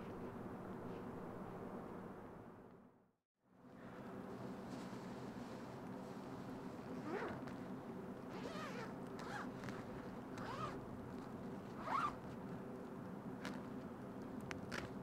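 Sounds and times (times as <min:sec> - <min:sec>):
tent zipper being pulled open: 0:06.8 - 0:07.6, 0:08.3 - 0:10.8, 0:11.8 - 0:12.2.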